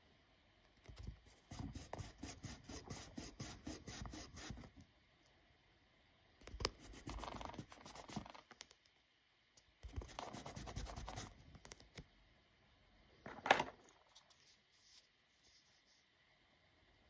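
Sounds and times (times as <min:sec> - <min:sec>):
eraser rubbing on paper: 0:01.3 - 0:04.7, 0:06.6 - 0:08.4, 0:09.9 - 0:11.3.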